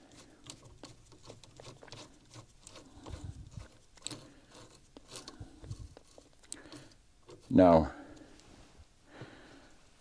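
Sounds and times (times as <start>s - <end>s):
screwdriver clicking and scraping: 0.0s - 7.5s.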